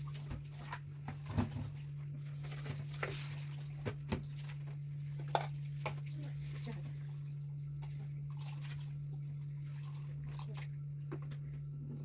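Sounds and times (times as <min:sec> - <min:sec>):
running tap water: 0:00.0 - 0:12.0
steady low hum: 0:00.0 - 0:12.0.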